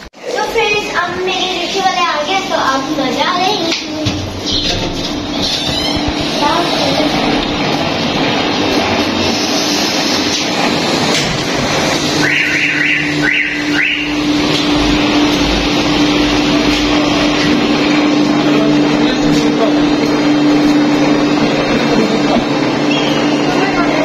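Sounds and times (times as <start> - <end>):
rickshaw engine humming: 0.0 - 24.0
metal door squeaking: 4.0 - 7.2.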